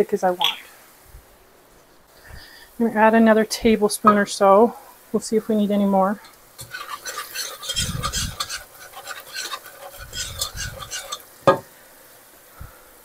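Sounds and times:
utensil stirring in saucepan: 5.2 - 11.6.

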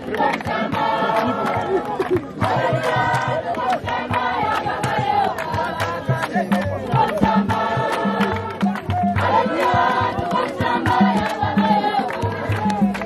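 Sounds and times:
choir singing a hymn: 0.0 - 1.8, 2.4 - 12.6.

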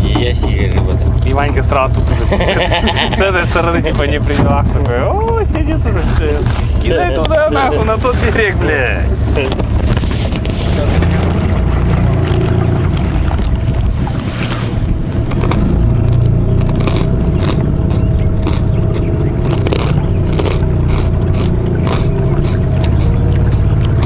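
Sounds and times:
small boat motor running: 0.0 - 24.0
short scrapes and knocks: 9.4 - 11.3.

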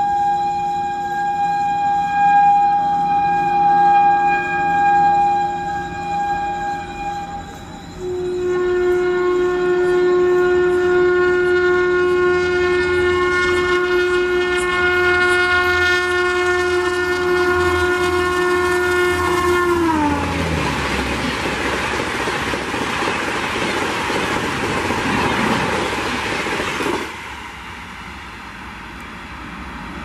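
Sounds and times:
train horn blast: 0.0 - 21.8
train coaches rushing past: 10.6 - 30.0.

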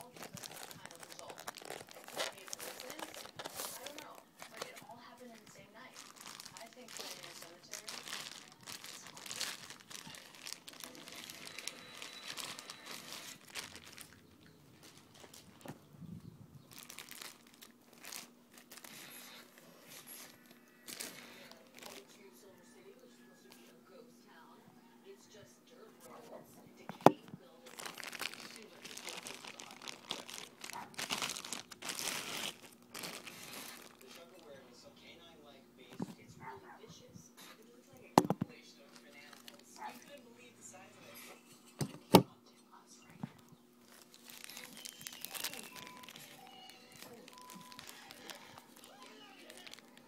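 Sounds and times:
plastic wrapper crinkling: 0.0 - 15.8, 16.6 - 22.3, 27.0 - 34.5, 38.1 - 40.2, 43.8 - 50.0.

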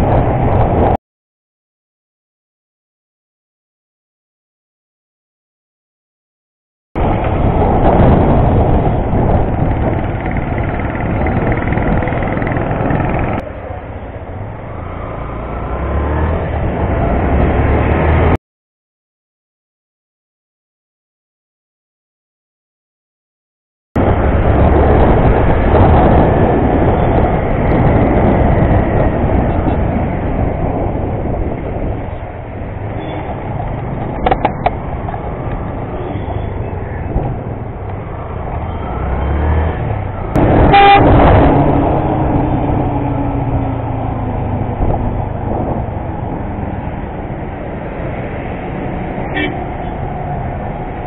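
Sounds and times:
wind rush on microphone: 0.0 - 1.0, 7.0 - 18.4, 24.0 - 51.0
motorcycle engine: 8.8 - 18.2
vehicle horns: 40.4 - 41.4, 49.3 - 50.0.

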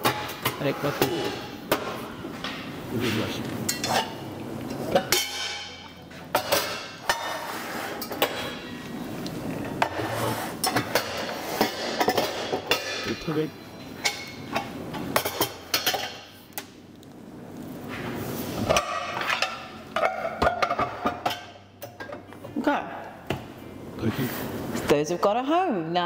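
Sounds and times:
metal pots and pans clanking: 0.0 - 8.8, 10.6 - 16.3, 18.6 - 22.3.

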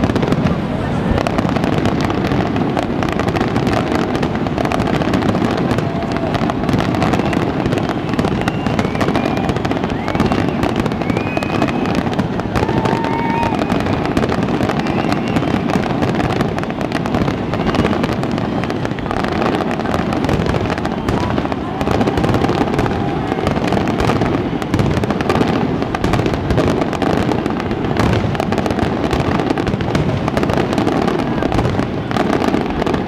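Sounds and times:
fireworks bursting and crackling: 0.0 - 33.0
fireworks whistles: 0.0 - 33.0.

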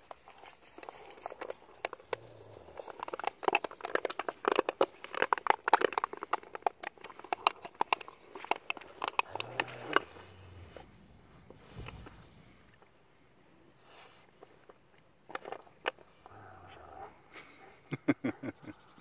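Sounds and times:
plastic bottle crackling: 0.0 - 10.5.

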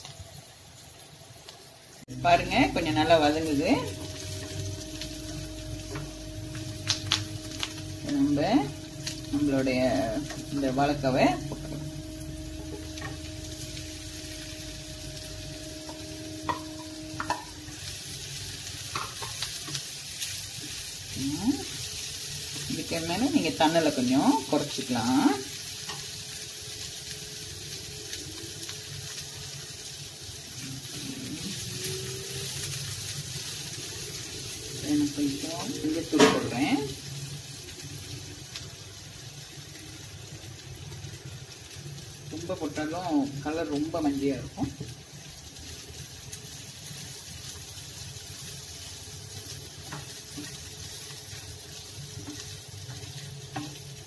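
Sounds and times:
plantain sizzling in a pan: 0.0 - 54.0
spatula tapping and scraping: 15.9 - 17.5.

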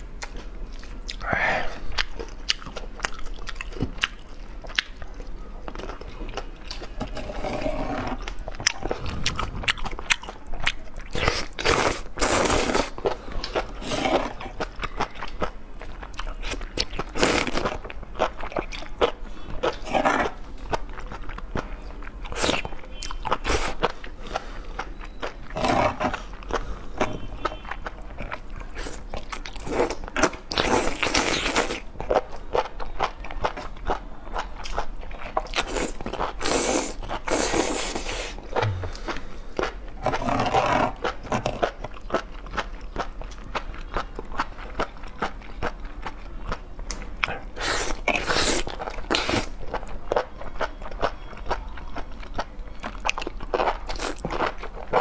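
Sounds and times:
wet chewing and smacking: 1.9 - 7.1, 8.2 - 55.0
slurping: 7.0 - 10.2, 35.6 - 39.3.

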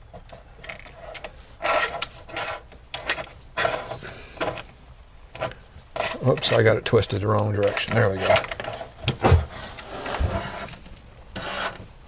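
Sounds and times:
cable sheath scraping: 0.8 - 4.6, 5.4 - 6.6.

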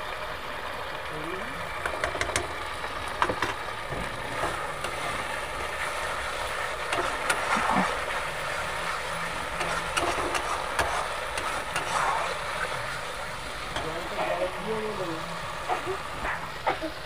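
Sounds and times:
spice paste sizzling in oil: 0.0 - 17.0
metal spatula scraping pan: 4.3 - 14.7.

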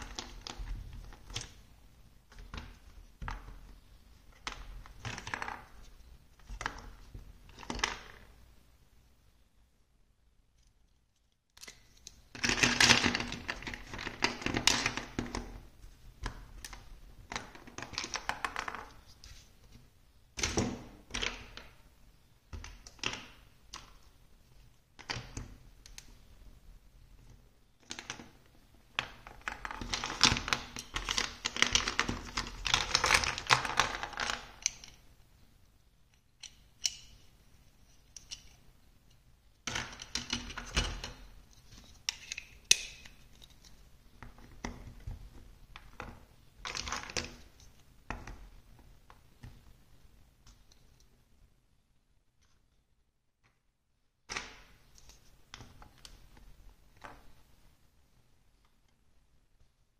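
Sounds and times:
plastic blocks clattering and clicking: 29.0 - 35.0, 39.7 - 47.4.

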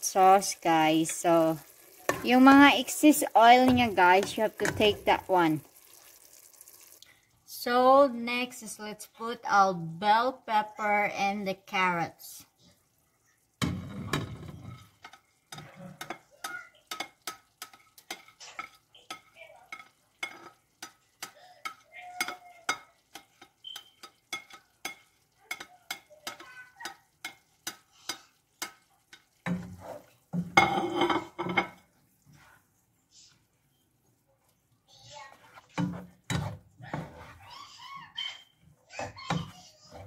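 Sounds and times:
spatula scraping and tapping plate: 3.6 - 5.2, 13.6 - 32.6, 35.3 - 37.4, 39.0 - 40.0
spatula clattering in pot: 13.6 - 31.9, 35.6 - 37.4.

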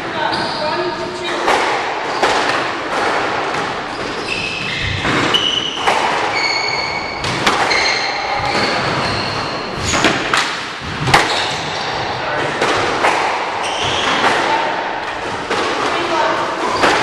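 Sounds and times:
shoes squeaking on hardwood floor: 0.1 - 1.0, 3.7 - 10.3, 13.6 - 14.2
squash ball cracks: 9.9 - 17.0.

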